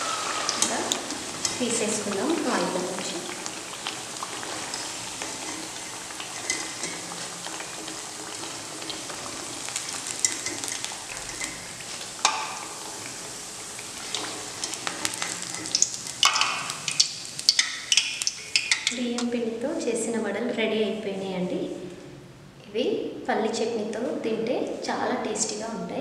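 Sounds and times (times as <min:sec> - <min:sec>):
food sizzling in hot oil: 0:00.0 - 0:19.0
skimmer scraping metal wok: 0:00.0 - 0:19.0.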